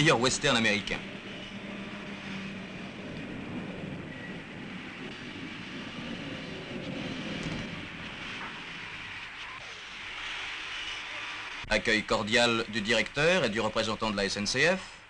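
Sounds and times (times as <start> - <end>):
truck driving past: 0.0 - 11.7
steady background hiss: 0.0 - 15.0.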